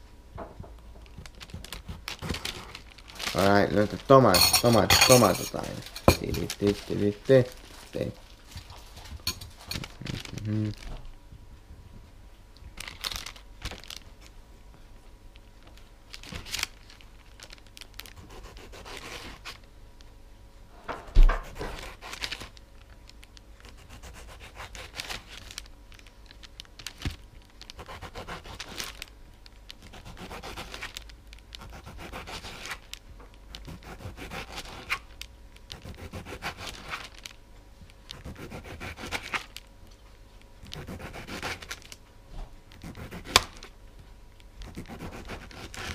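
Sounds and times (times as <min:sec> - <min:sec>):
handling rustle: 0:01.0 - 0:11.1.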